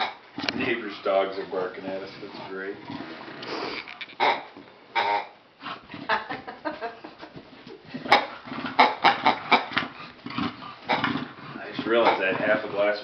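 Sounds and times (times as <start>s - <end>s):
dog grunting: 7.8s - 13.0s.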